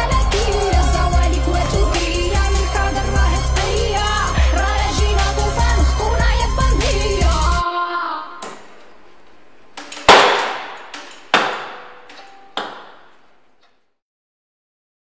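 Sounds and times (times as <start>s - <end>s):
phone handset clanking on metal: 9.8s - 13.1s.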